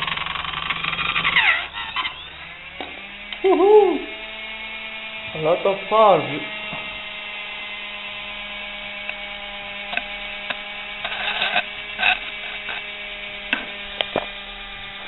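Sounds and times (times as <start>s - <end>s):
rod scraping spinning gear: 0.0s - 3.2s, 9.2s - 15.0s
mixer motor whine: 0.0s - 15.0s.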